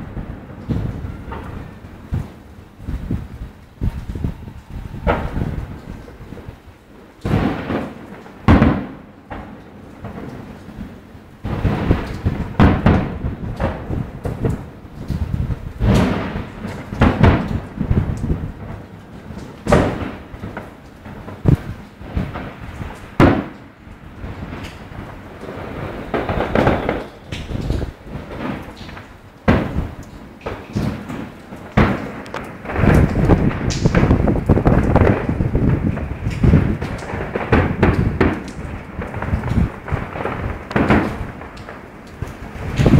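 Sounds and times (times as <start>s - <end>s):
fireworks bursting with bangs: 0.0s - 42.9s
small fireworks pops: 0.0s - 42.9s
fireworks shells bursting: 24.4s - 42.9s.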